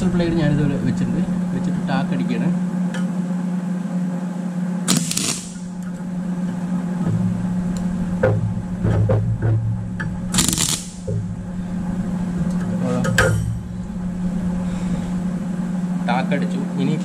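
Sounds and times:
welding arc crackle: 4.9 - 6.5, 10.3 - 11.2
welding machine hum: 4.9 - 16.2.

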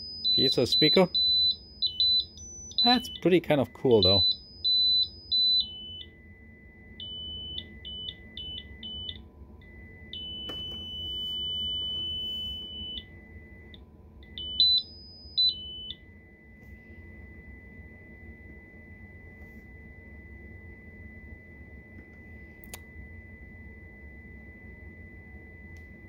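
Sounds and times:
piezo speaker beeps: 0.0 - 19.9.

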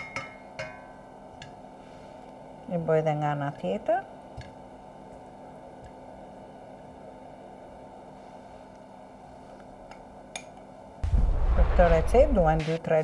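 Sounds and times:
electrical hum: 0.4 - 13.0
low hiss: 11.0 - 13.0.

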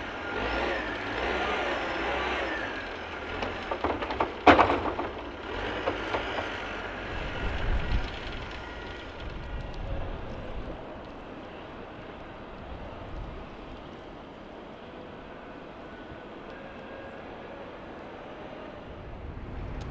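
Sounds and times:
diesel engine running: 0.0 - 14.3
light knocks: 3.3 - 8.2.

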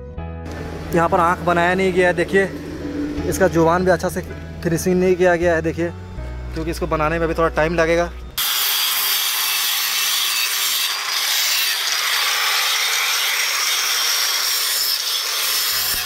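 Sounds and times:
electric grinder grinding stone: 8.4 - 16.0.

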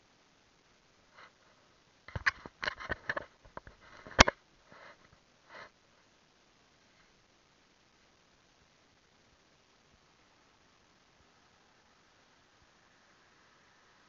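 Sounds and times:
sharp clicks and knocks: 2.1 - 4.4.

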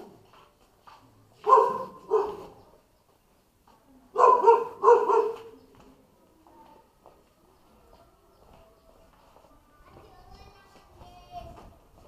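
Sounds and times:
dog barking: 1.4 - 2.6, 4.2 - 5.5.

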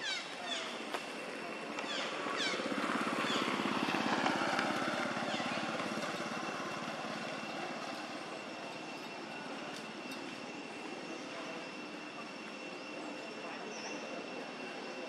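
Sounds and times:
motorbike engine passing by: 1.8 - 8.5.

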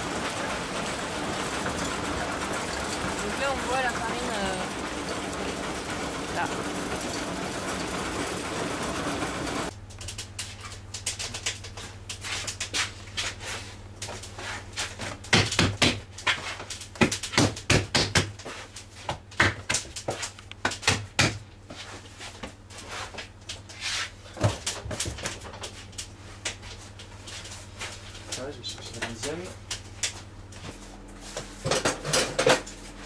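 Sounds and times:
flour mill running: 0.0 - 15.3, 24.2 - 33.0
dough slapping and thumping: 14.1 - 22.6.

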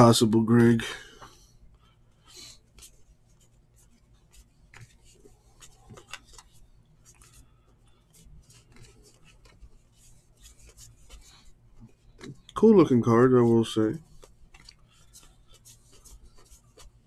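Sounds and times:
cards flipped by hand: 4.2 - 7.4, 8.2 - 11.4, 14.1 - 17.0.

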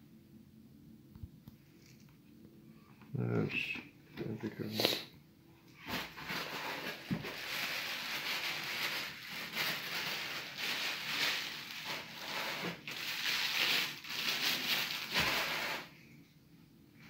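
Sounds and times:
packaging crinkling: 5.9 - 15.9.

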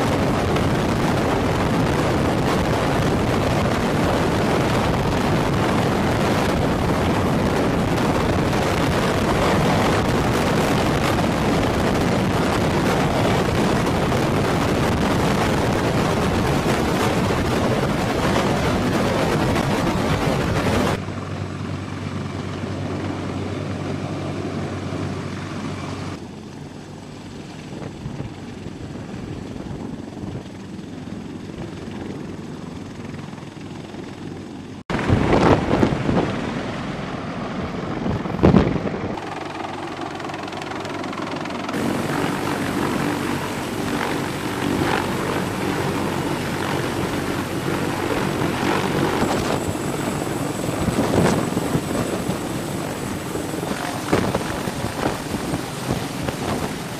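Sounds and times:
helicopter rotor and engines rumbling: 0.0 - 56.9
rotor downwash buffeting microphone: 34.9 - 56.9.

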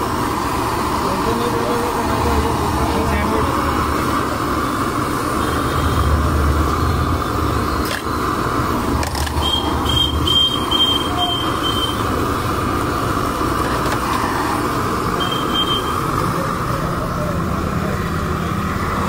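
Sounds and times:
gas burner: 0.0 - 19.0
street traffic: 0.0 - 19.0
bread frying in a pan: 4.5 - 16.2.

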